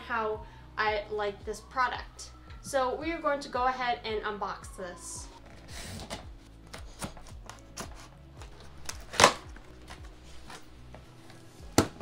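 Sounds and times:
box cutter cutting packing tape: 8.8 - 10.0.

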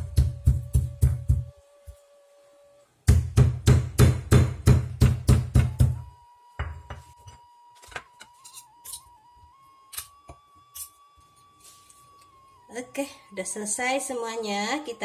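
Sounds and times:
stone pestle pounding on stone: 0.0 - 1.5, 3.1 - 6.0.

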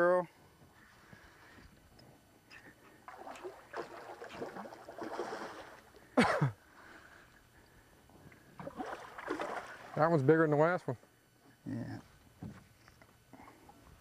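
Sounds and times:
water splashing by boat: 2.9 - 6.2, 8.6 - 10.2.

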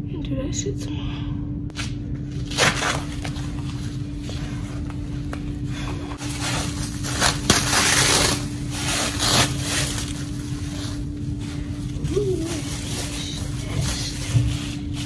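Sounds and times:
plastic wrap crinkling: 6.2 - 15.0.

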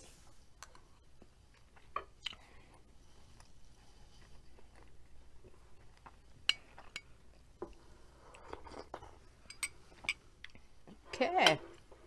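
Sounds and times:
spoon clinking glass bowl: 9.4 - 10.2.

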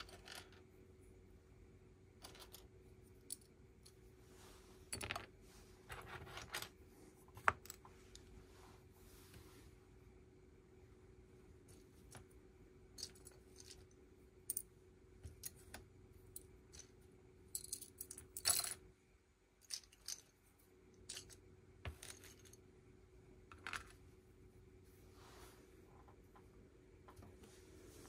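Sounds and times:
plastic pieces clicking and rattling: 19.6 - 20.4.

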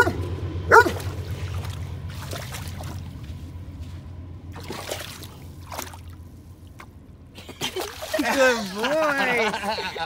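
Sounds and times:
low steady rumble: 0.0 - 10.0
dog splashing in water: 0.8 - 3.3, 4.5 - 6.8.

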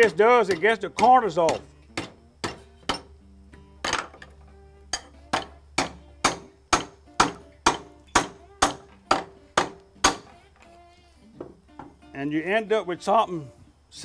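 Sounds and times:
wooden mallet striking wood: 0.0 - 3.1, 5.0 - 10.4.

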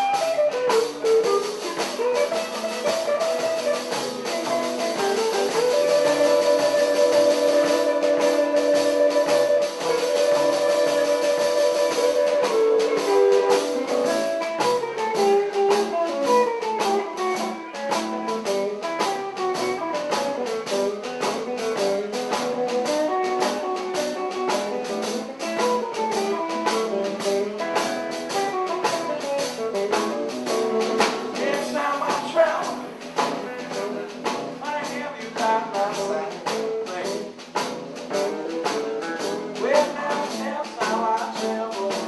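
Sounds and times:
blues guitar runs: 0.0 - 42.0
steady beat: 0.0 - 42.0.

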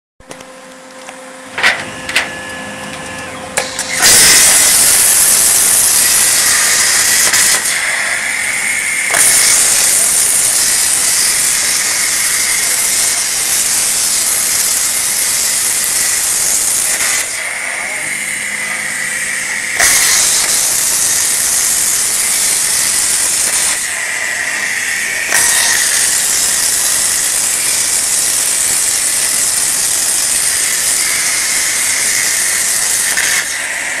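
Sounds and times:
thin high whine: 0.2 - 34.0
plasma torch hissing: 3.6 - 34.0.

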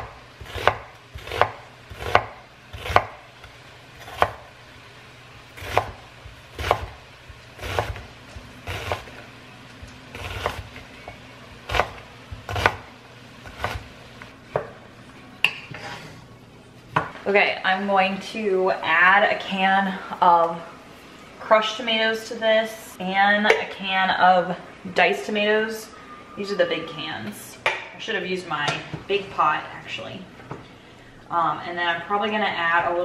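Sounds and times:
knife chopping on cutting board: 0.0 - 3.2, 5.6 - 6.0, 6.6 - 7.0, 7.6 - 8.1, 11.7 - 13.9.

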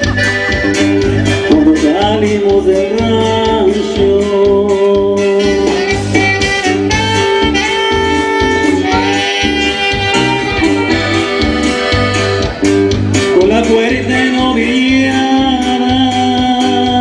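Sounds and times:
saxophone melody: 0.0 - 1.8, 5.2 - 12.9
accordion: 0.0 - 17.0
bass: 0.0 - 17.0
drums: 0.0 - 17.0.

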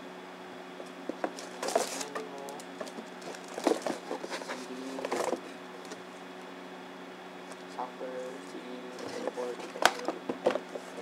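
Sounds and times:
low electrical hum: 0.0 - 11.0
box and packing being handled: 1.1 - 6.0, 8.9 - 11.0.

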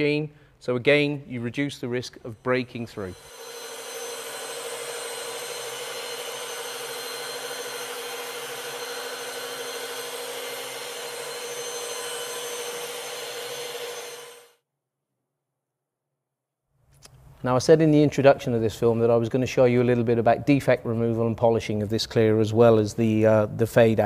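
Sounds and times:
machine polisher motor hum: 2.6 - 14.5.

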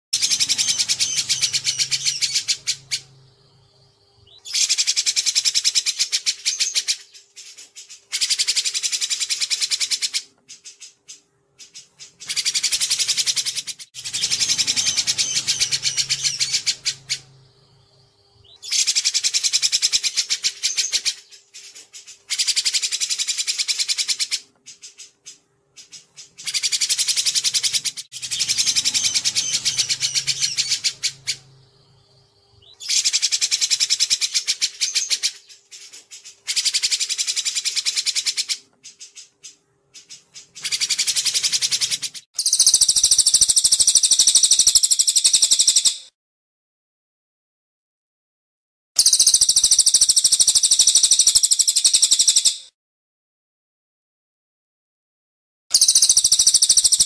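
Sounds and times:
faint steady hum: 0.4 - 4.5, 14.0 - 18.6
songbird rapid high notes: 12.1 - 17.9, 26.6 - 31.8.

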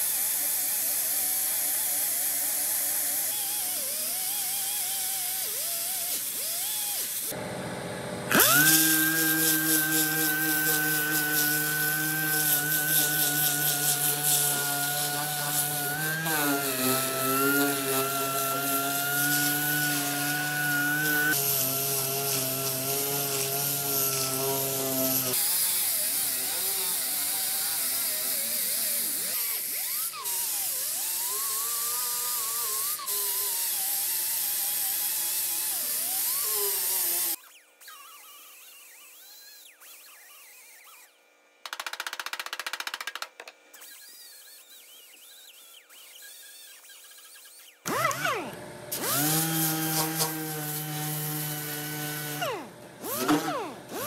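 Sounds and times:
grinder whining on metal: 0.0 - 41.2, 43.6 - 54.0.

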